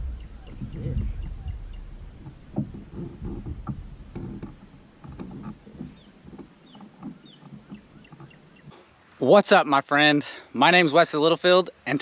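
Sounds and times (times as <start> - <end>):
knocks and rattles of fishing gear: 0.0 - 8.7.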